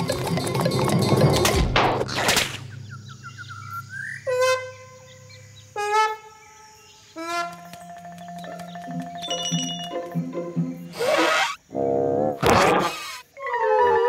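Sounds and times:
reedy horn-like notes: 0:04.2 - 0:06.5, 0:07.2 - 0:07.8.

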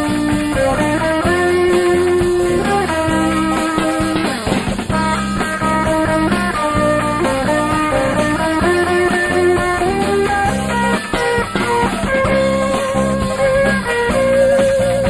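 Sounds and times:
instrumental rock music: 0:00.0 - 0:15.0.

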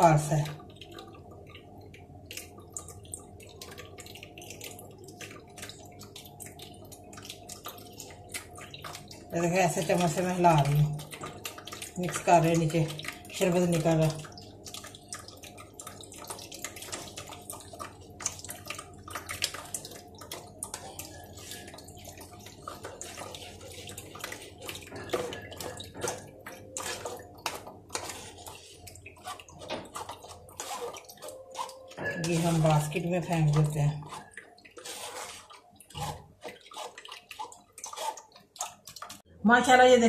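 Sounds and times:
juice dripping into bowl: 0:00.0 - 0:39.4
spoon scraping mesh strainer: 0:27.9 - 0:37.1.

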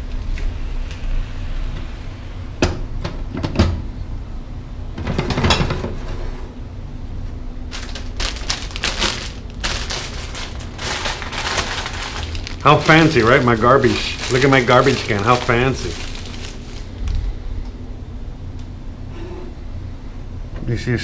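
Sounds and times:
low steady rumble: 0:00.0 - 0:05.0, 0:06.5 - 0:21.0
plastic bags crinkling: 0:07.7 - 0:17.4.

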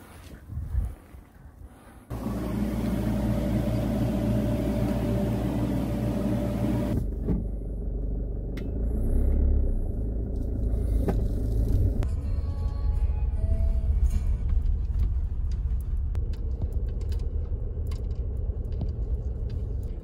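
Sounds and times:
refrigerator humming: 0:02.1 - 0:07.2
car rumble from inside: 0:02.1 - 0:20.0.

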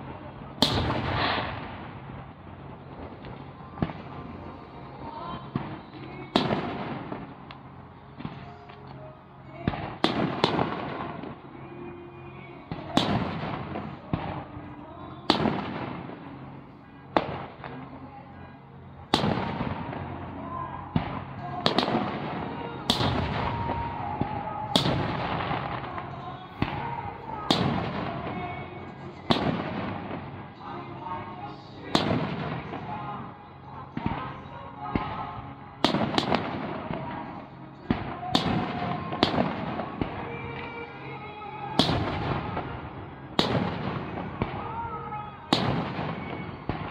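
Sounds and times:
rumble and crackle: 0:00.0 - 0:11.7.

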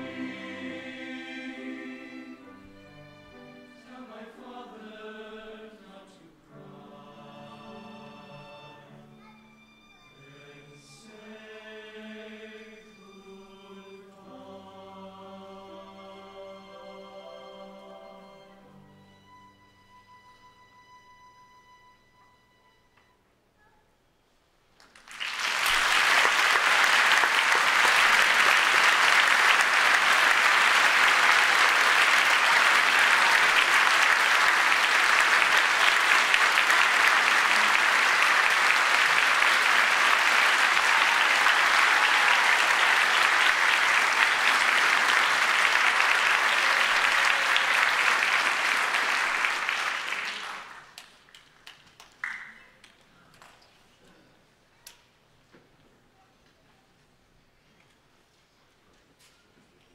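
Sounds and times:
audience applauding: 0:24.8 - 0:53.0.

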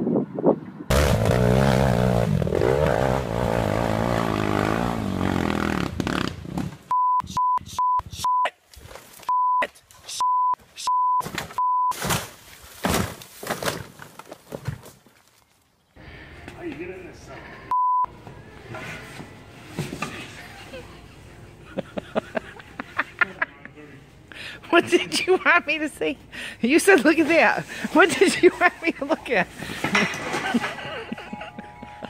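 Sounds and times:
atv engine revving: 0:00.9 - 0:06.6
censor bleeps: 0:06.9 - 0:08.5, 0:09.3 - 0:11.9, 0:17.7 - 0:18.1.

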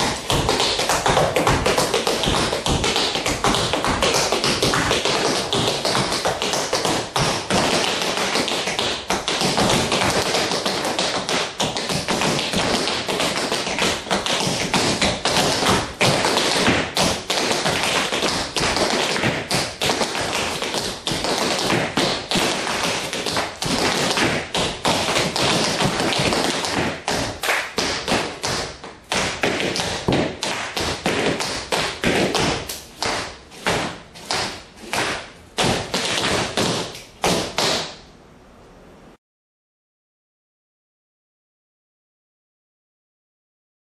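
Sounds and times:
tap shoes on hard floor: 0:00.0 - 0:38.0.

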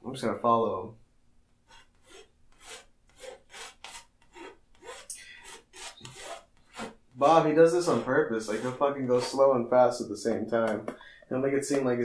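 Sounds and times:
palette knife scraping canvas: 0:01.7 - 0:09.4.

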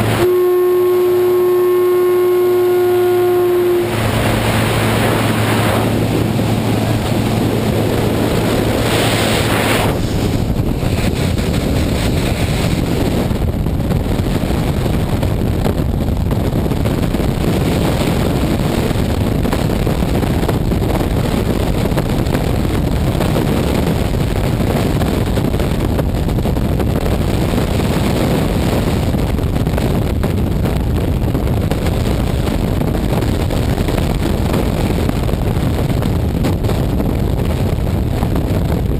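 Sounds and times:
light aircraft engine droning: 0:00.0 - 0:22.0
freefall wind buffeting microphone: 0:00.0 - 0:38.9
wind rushing past open door: 0:03.9 - 0:38.9.

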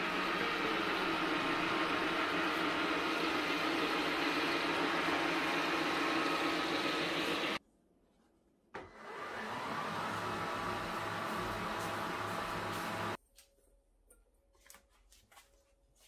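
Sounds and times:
wet-mop cleaner motor humming: 0:00.0 - 0:07.6, 0:08.8 - 0:13.2.

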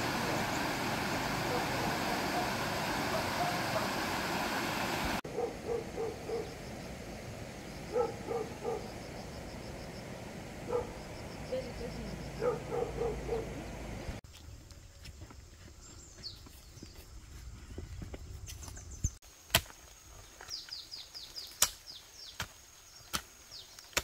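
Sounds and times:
loud rushing noise: 0:00.0 - 0:05.2.

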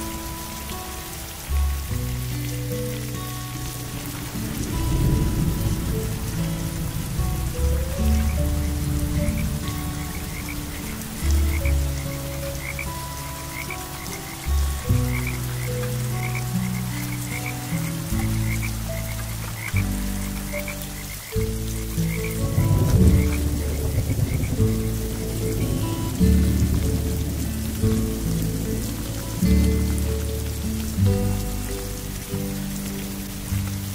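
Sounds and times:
frogs croaking: 0:00.0 - 0:33.9
rain hiss: 0:00.0 - 0:33.9.

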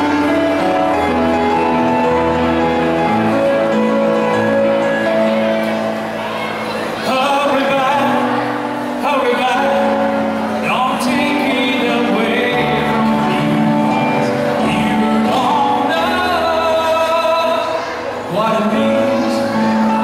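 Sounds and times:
electronic keyboard: 0:00.0 - 0:20.0
man singing into microphone: 0:07.0 - 0:20.0.

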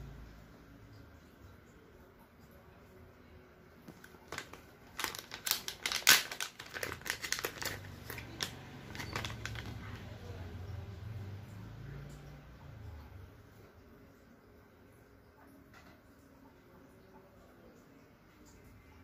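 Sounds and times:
plastic packaging crinkling: 0:03.8 - 0:10.1.

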